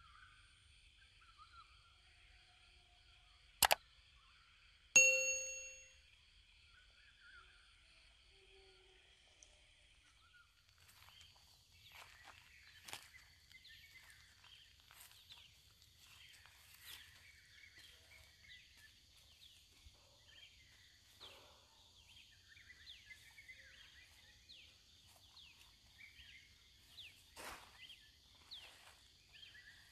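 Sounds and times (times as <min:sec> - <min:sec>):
birds chirping: 0:10.0 - 0:29.9.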